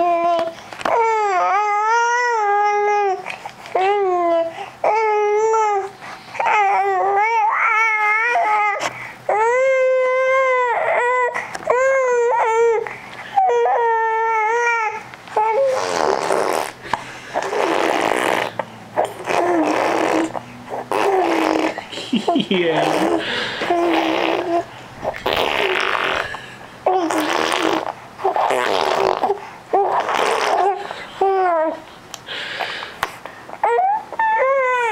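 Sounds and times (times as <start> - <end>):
baby squealing: 13.4 - 16.8, 17.4 - 21.9, 22.8 - 31.8, 33.6 - 34.9.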